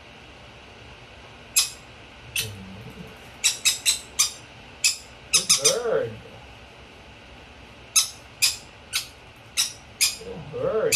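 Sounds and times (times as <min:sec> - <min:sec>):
bird squeaking: 0:01.6 - 0:01.8, 0:03.4 - 0:05.8, 0:07.9 - 0:10.3.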